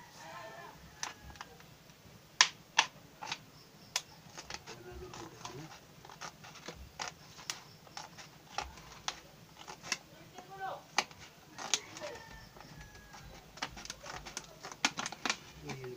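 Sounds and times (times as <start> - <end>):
scissors snipping plastic bottle: 4.0 - 15.9.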